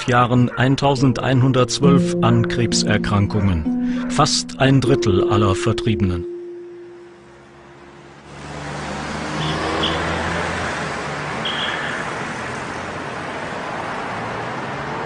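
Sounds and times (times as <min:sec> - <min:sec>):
cars passing: 0:06.9 - 0:15.0.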